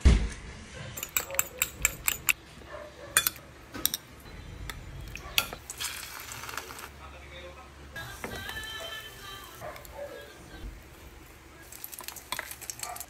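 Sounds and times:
fork clicking against ceramic bowl: 1.0 - 2.4.

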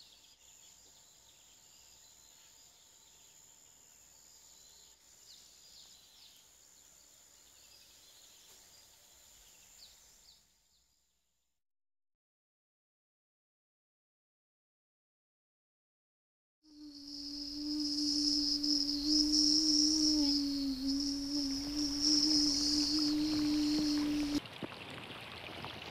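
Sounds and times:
soft hiss: 16.7 - 24.4
thin steady high tone: 16.7 - 24.4.

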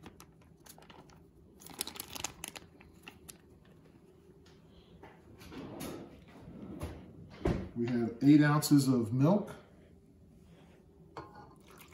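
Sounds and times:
paper wrapper crinkling: 0.0 - 3.8.

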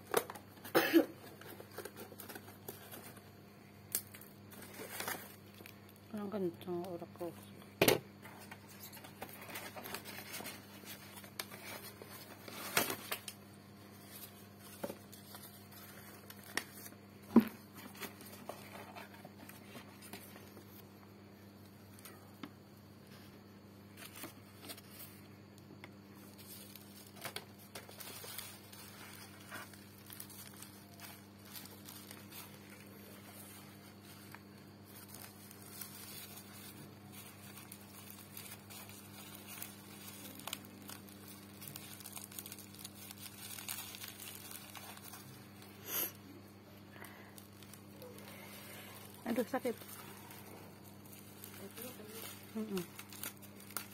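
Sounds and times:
cardboard and bubble wrap rustling: 0.0 - 3.3, 3.9 - 7.6, 8.2 - 20.9, 21.8 - 46.2, 46.9 - 53.9
low steady hum: 0.0 - 53.9
scissors cutting bubble wrap: 26.6 - 45.4, 47.4 - 53.9.

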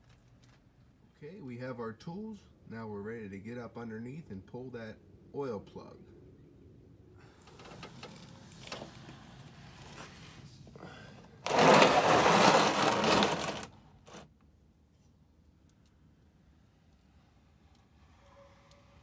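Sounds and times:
plastic pan scraping on concrete: 11.4 - 14.2.

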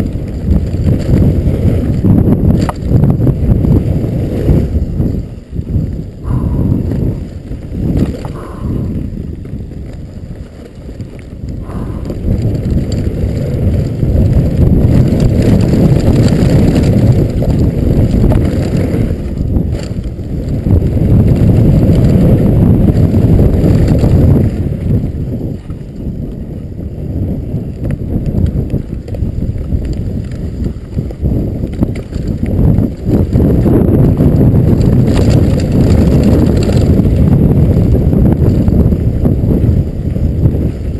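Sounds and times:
bike rattling over bumps: 0.0 - 40.9
bike tyres rumbling on dirt: 0.0 - 40.9
wind on microphone: 0.0 - 40.9.

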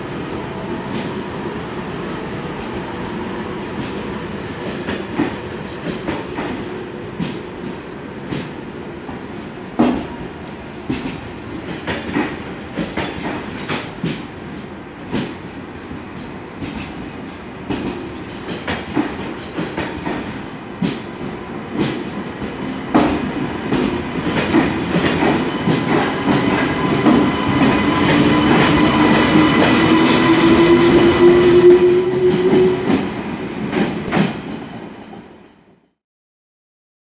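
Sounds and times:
train wheels clicking over rail joints: 9.8 - 21.1, 21.7 - 31.1, 32.2 - 35.7
train whine rising in pitch: 24.7 - 33.3.

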